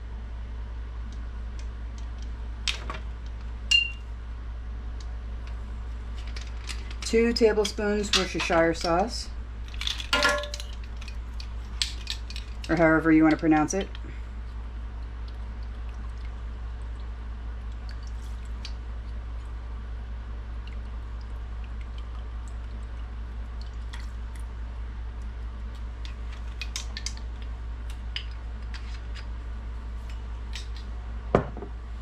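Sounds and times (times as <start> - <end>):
low steady hum: 0.0 - 32.0
sauce ticking and popping: 20.4 - 24.6.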